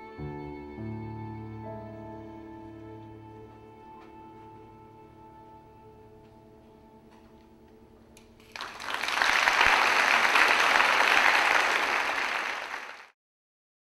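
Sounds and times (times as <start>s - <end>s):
audience applause: 8.4s - 13.2s.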